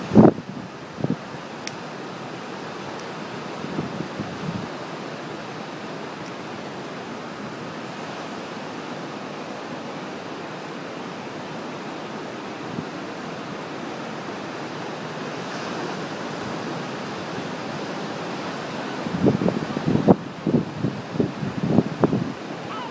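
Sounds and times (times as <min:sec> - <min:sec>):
waves breaking on rocky shore: 0:00.0 - 0:22.9.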